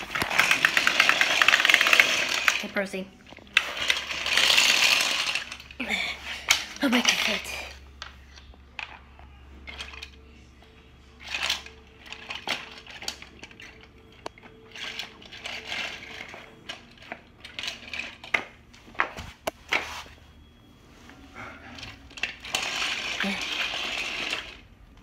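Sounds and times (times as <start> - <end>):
toy train track pieces clattering: 0.0 - 5.8, 6.4 - 9.0, 9.6 - 10.2, 11.2 - 18.6, 21.8 - 24.7.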